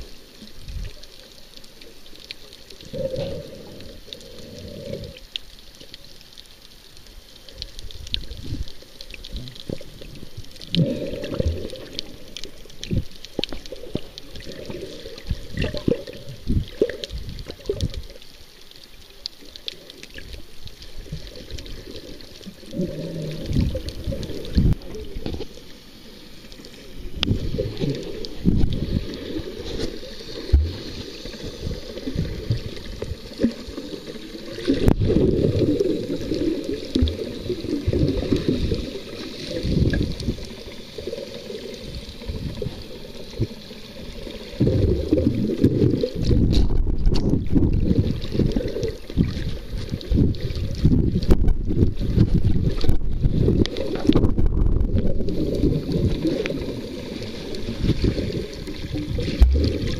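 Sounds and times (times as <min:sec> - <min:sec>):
underwater water rushing: 0:00.0 - 0:59.9
faint clicks: 0:00.3 - 0:35.0.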